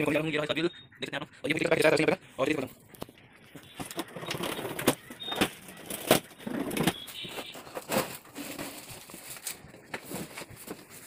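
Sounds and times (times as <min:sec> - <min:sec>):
cardboard crackling and scraping: 0:03.6 - 0:11.0.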